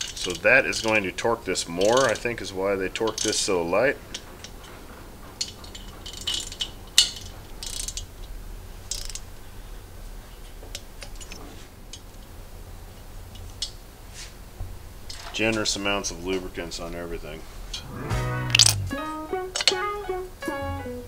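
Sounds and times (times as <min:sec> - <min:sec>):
ratchet wrench clicking: 0:00.0 - 0:01.0, 0:05.4 - 0:08.0, 0:08.9 - 0:09.2.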